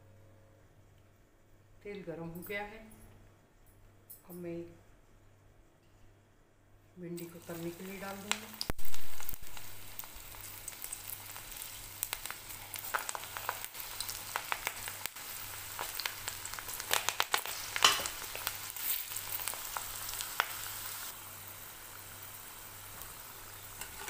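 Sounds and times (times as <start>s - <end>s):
deep-frying sizzle with pops: 7.2s - 24.0s.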